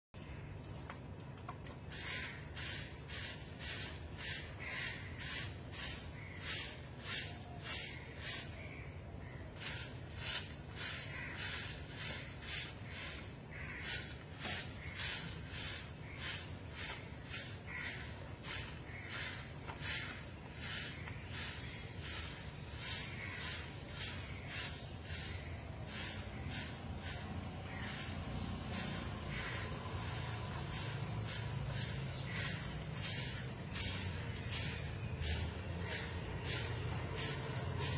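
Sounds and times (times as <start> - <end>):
broom sweeping dirt: 1.0 - 37.9.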